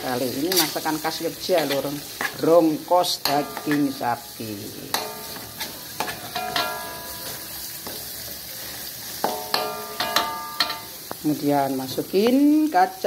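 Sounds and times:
paste sizzling in a wok: 0.0s - 13.0s
metal spatula clanking on wok: 3.2s - 4.0s, 4.9s - 8.0s, 9.2s - 11.0s.

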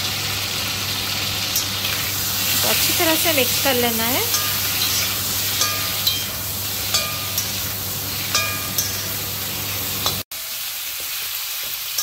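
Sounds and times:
chicken sizzling in oil: 0.0s - 12.0s
metal spatula striking pan: 4.2s - 9.3s.

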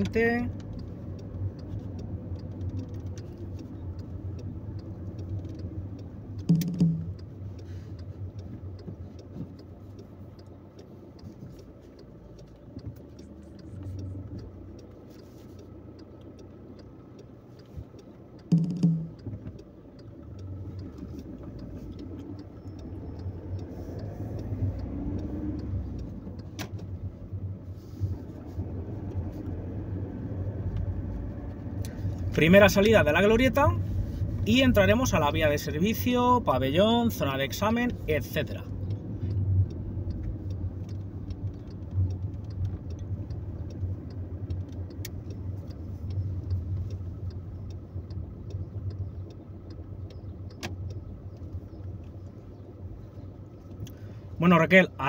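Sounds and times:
car engine and road noise: 0.0s - 55.0s
short thumps: 6.4s - 7.2s, 18.5s - 19.6s.

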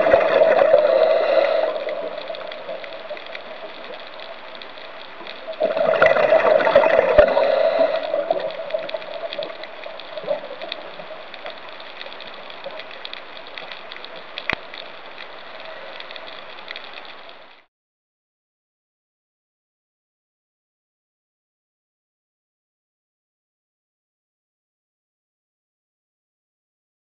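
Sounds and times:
diver's exhaled bubbles: 0.0s - 3.9s, 5.5s - 10.9s
steady underwater hum: 0.0s - 17.7s.

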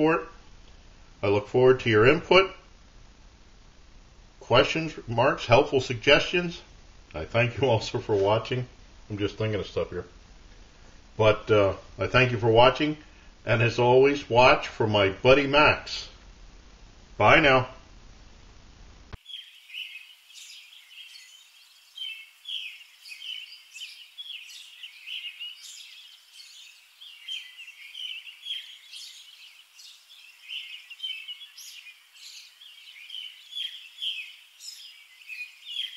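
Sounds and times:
small birds chirping: 19.2s - 35.9s.

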